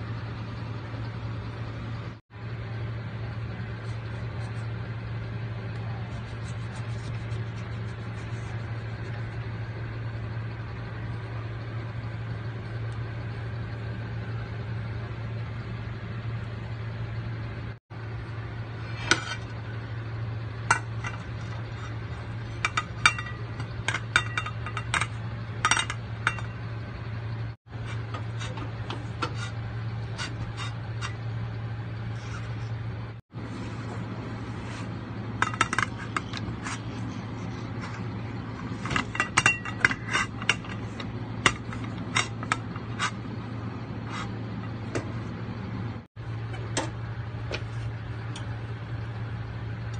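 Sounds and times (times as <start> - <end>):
steady low hum: 0.0 - 49.9
utensils clinking on metal pan: 22.6 - 26.5, 38.8 - 43.2.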